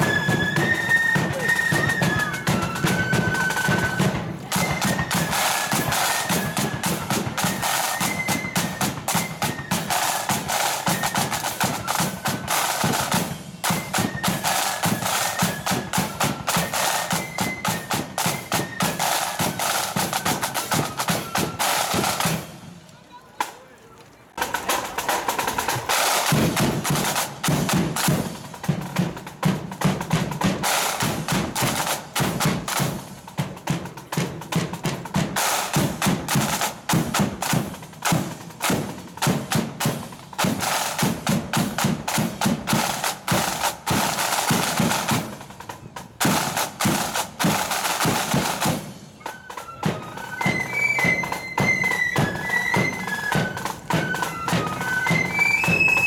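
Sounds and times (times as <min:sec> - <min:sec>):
flutes playing a tune: 0:00.0 - 0:23.4, 0:42.2 - 0:56.0
snare and bass drums marching beat: 0:00.0 - 0:23.6, 0:24.4 - 0:56.0.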